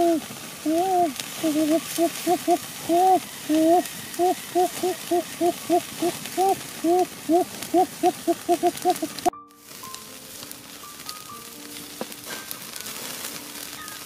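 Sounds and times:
man hooting: 0.0s - 9.3s.

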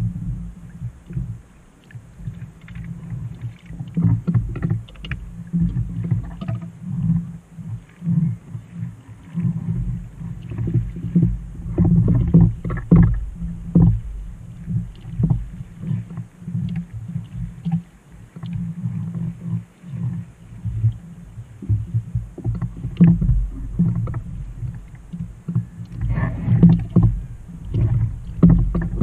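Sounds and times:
waves slapping kayak hull: 0.0s - 29.0s
wind buffeting microphone: 0.0s - 29.0s
gear knocking and rustling: 9.8s - 17.8s, 21.6s - 29.0s.

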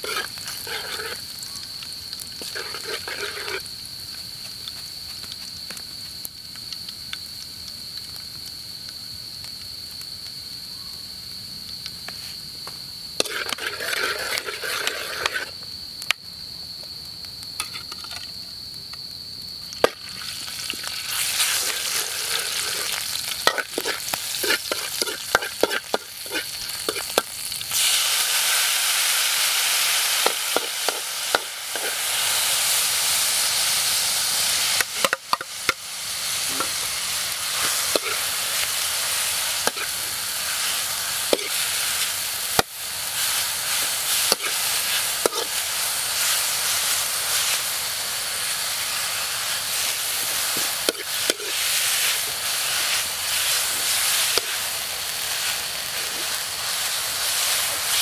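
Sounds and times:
metal spatula scraping wok: 0.0s - 1.2s, 2.4s - 3.6s, 13.2s - 15.5s, 21.3s - 27.3s, 30.2s - 32.1s, 37.5s - 42.6s, 43.2s - 45.6s, 49.8s - 54.7s
food frying in oil: 0.0s - 10.3s, 13.1s - 16.1s, 19.4s - 58.0s.

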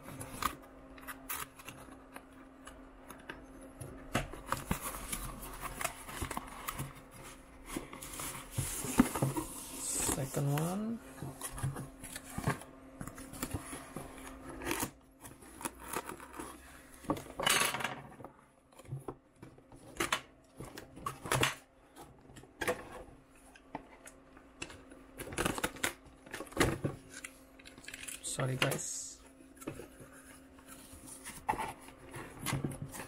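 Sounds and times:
cardboard box being handled: 4.4s - 14.8s.

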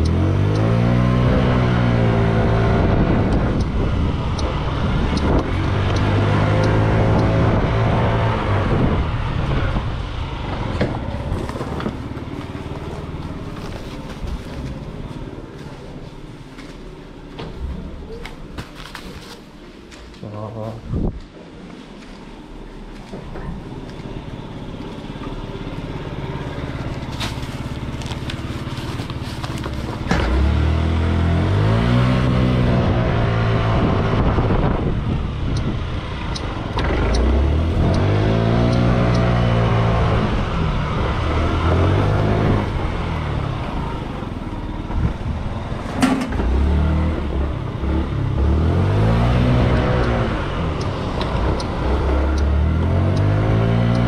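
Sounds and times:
sharp clicks: 36.3s - 39.3s.

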